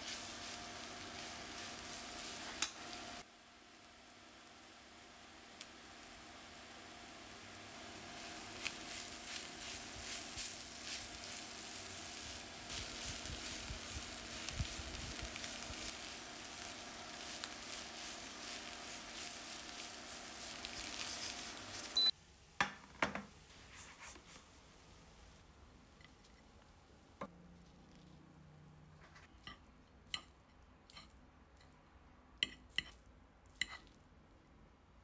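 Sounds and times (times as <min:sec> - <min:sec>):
spatula stirring and scraping: 0:00.0 - 0:02.7, 0:08.0 - 0:22.1, 0:32.4 - 0:34.0
food sizzling in a frying pan: 0:00.0 - 0:22.2.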